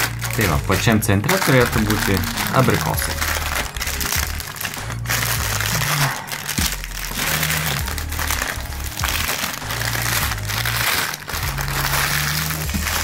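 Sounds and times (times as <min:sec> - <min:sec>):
background music with bass line: 0:00.0 - 0:13.0
plastic film crinkling: 0:00.0 - 0:13.0.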